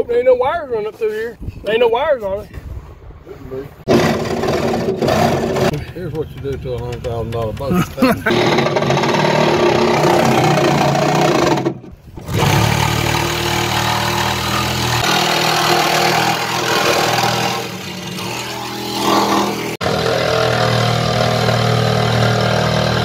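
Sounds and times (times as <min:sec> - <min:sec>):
reciprocating saw cutting metal: 0:08.3 - 0:23.0.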